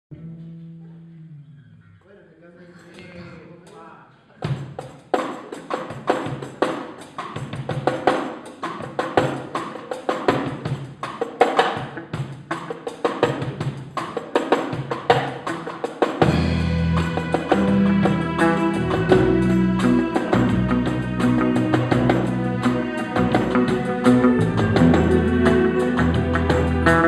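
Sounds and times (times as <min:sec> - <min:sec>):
drum kit: 0:04.4 - 0:27.0
band with low bass notes: 0:16.2 - 0:27.0.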